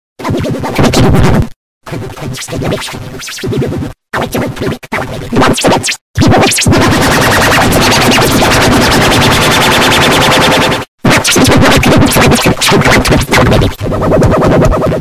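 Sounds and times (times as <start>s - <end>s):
stuttering scratch-like music: 0.2s - 15.0s.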